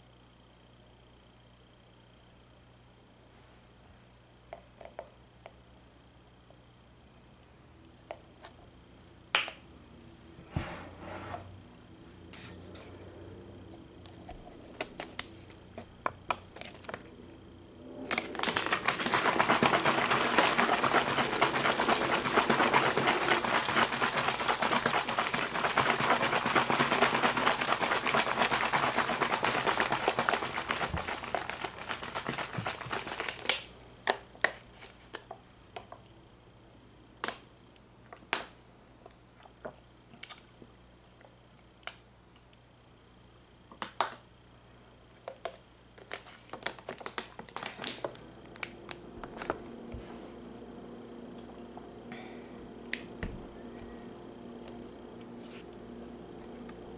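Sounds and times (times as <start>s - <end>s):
plastic bottle crinkling: 18.1s - 33.7s, 46.6s - 48.2s.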